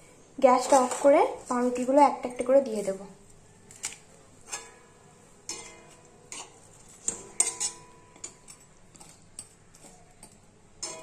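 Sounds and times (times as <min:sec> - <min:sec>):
metal utensil clinking on pan: 0:03.8 - 0:11.0.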